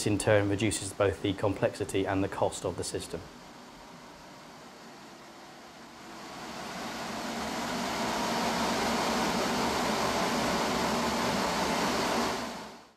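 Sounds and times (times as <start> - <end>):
steady rushing noise: 5.9 - 12.6.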